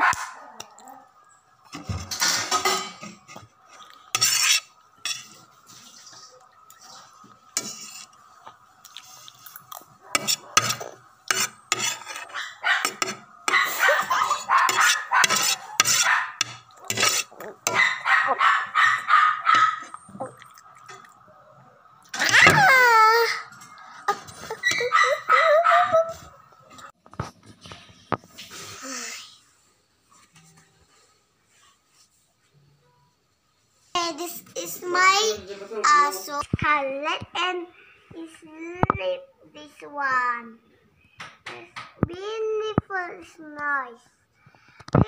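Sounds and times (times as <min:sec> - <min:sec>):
dishes and cutlery clinking: 0:01.7 - 0:03.4, 0:09.6 - 0:18.0.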